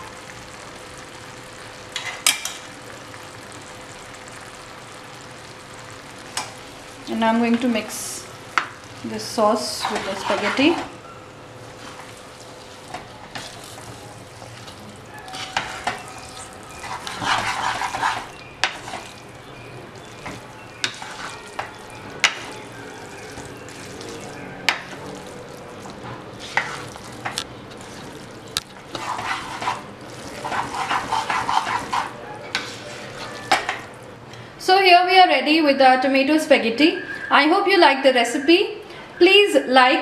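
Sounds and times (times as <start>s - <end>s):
pan sizzling: 0.0s - 34.2s
spatula stirring pasta in sauce: 8.5s - 11.0s, 11.7s - 33.9s.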